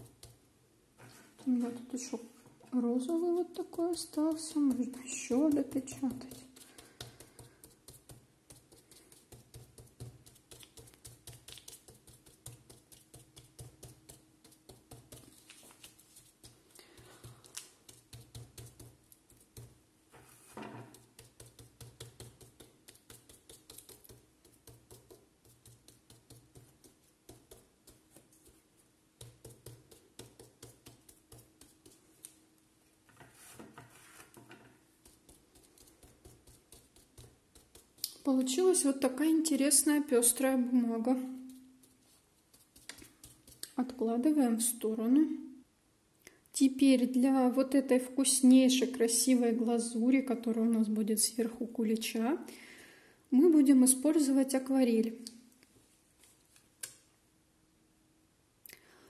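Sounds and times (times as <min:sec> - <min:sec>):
sponge dabbing on paper: 0:00.0 - 0:01.9, 0:02.9 - 0:32.4, 0:33.2 - 0:44.3.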